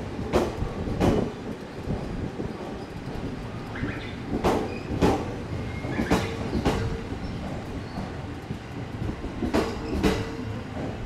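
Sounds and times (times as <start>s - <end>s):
train wheels clacking over rail joints: 0.0s - 11.0s.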